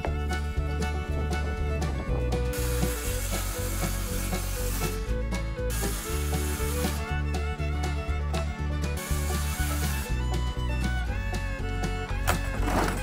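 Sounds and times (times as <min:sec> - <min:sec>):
country music with steady beat: 0:00.0 - 0:13.0
circular saw cutting plywood: 0:01.4 - 0:07.4, 0:08.9 - 0:10.2.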